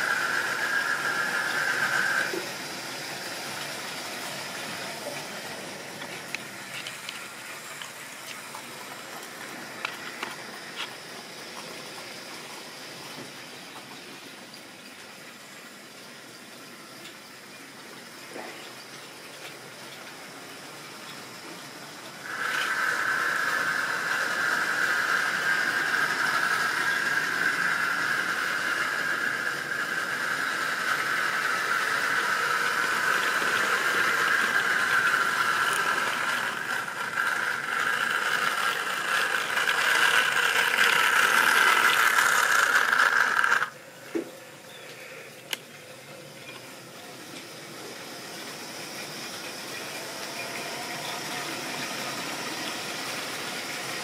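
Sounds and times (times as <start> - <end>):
model train motor whine: 0.0 - 13.3, 15.3 - 45.6, 46.4 - 54.0
rattling wheels on track: 22.0 - 44.3.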